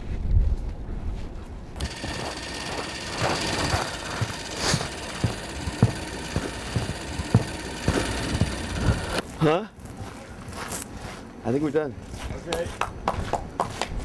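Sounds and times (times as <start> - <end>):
film camera motor whirr: 1.8 - 9.2.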